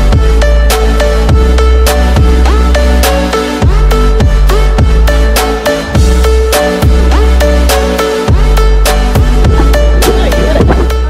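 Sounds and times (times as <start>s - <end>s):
electronic music with sliding bass: 0.0s - 11.0s.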